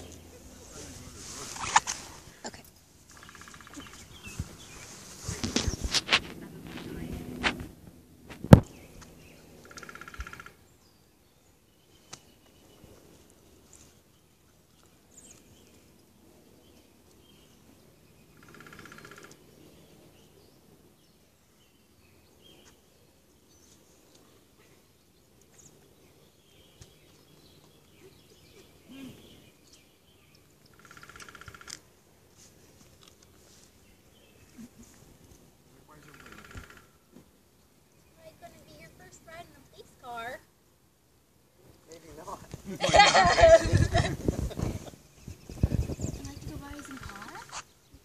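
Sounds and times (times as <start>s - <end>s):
faint street ambience: 0.0s - 48.0s
bird trilling: 3.1s - 4.8s, 9.3s - 10.7s, 18.4s - 19.4s, 30.7s - 31.7s, 35.9s - 37.1s
bird chirps: 3.1s - 5.0s.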